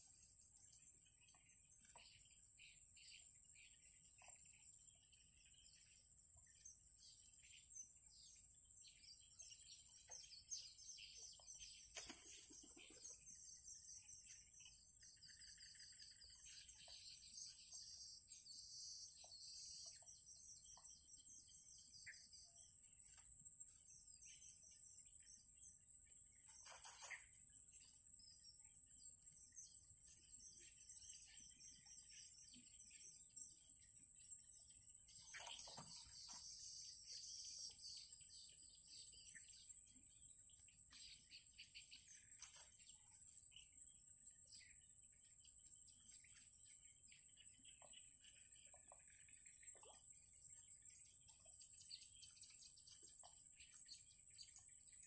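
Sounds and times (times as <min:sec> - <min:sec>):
small birds chirping and trilling: 0:00.0 - 0:55.0
high insect whine: 0:15.0 - 0:55.0.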